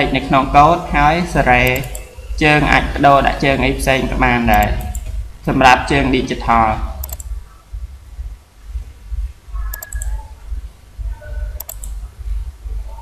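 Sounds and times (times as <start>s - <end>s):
steady low hum: 0.0s - 13.0s
computer mouse clicking: 1.6s - 2.1s, 4.5s - 5.2s, 7.0s - 7.4s, 9.6s - 10.3s, 11.4s - 12.0s.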